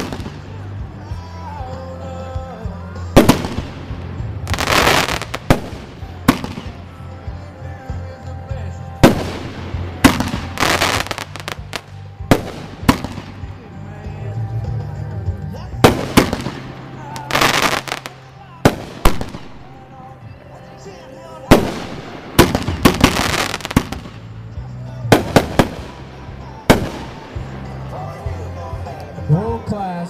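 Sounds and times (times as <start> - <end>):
firework bangs: 3.2 - 6.9, 9.0 - 13.5, 15.8 - 19.7, 21.5 - 24.3, 25.1 - 26.0, 26.7 - 27.3.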